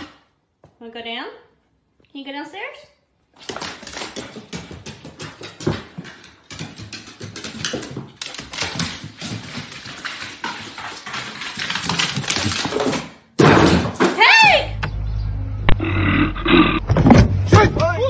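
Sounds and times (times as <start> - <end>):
dog claws clattering on stairs: 3.4 - 14.0.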